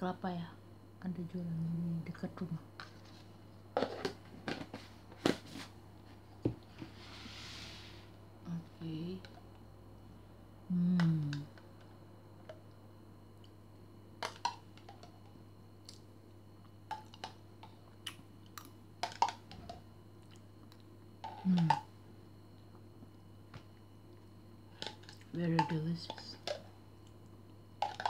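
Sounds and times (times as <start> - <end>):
person humming: 10.7 - 11.5, 21.4 - 21.8.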